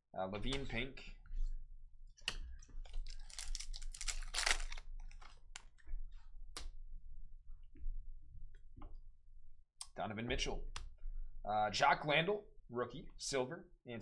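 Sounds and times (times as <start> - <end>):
foil pack crinkling: 2.8 - 5.8.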